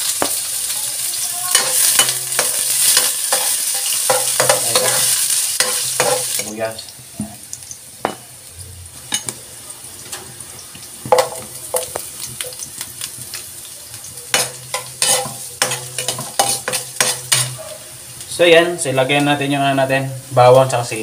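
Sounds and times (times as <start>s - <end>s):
onions sizzling in oil: 0.0s - 21.0s
spatula scraping and tapping pan: 1.5s - 6.6s, 11.0s - 12.7s, 14.3s - 17.6s.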